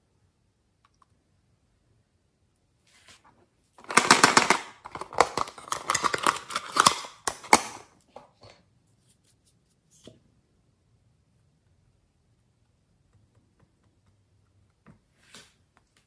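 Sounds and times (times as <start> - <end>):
plastic case clicking and clattering: 3.8 - 7.8
plastic case snapping: 3.8 - 7.8.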